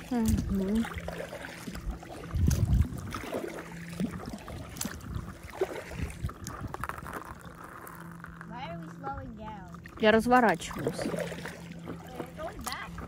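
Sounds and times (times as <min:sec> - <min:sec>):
low rumble: 0:00.0 - 0:13.0
paddle splashing in water: 0:00.0 - 0:13.0.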